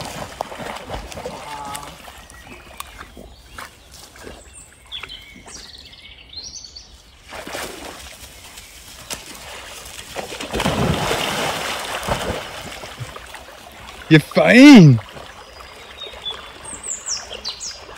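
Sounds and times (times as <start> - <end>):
dog splashing in water: 0.0 - 4.4, 9.0 - 14.1
small birds chirping: 1.5 - 7.3, 15.1 - 17.9.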